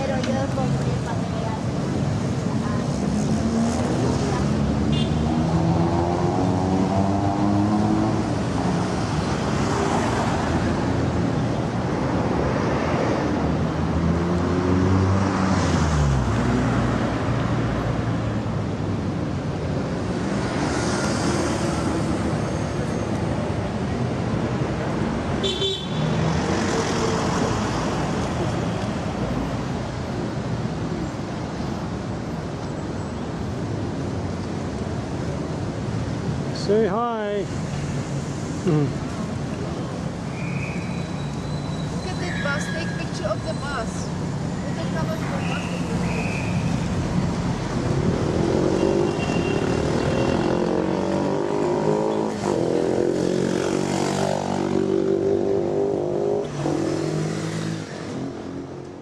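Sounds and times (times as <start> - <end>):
cars and buses passing: 0.0 - 59.0
car horn toot: 25.4 - 26.0.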